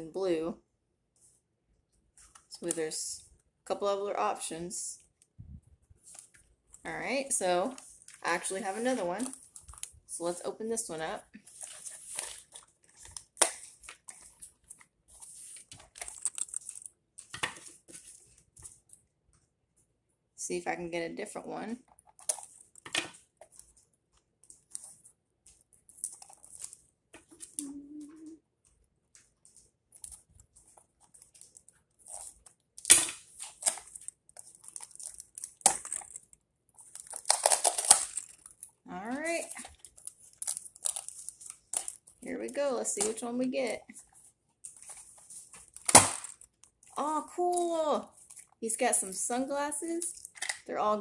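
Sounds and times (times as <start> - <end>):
packaging crinkling and rustling: 6.0 - 10.1, 11.4 - 19.0, 21.9 - 27.6, 28.7 - 42.3, 43.8 - 48.6
cardboard rustling and scraping: 11.4 - 18.8
sharp cardboard crack: 45.8 - 46.4.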